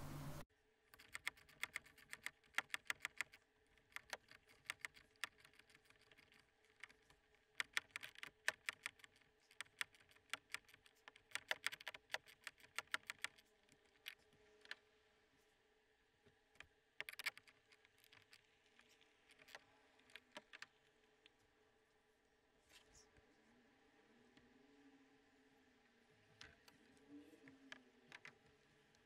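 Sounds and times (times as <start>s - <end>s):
sharp plastic clicks: 1.0s - 14.8s, 16.6s - 20.9s.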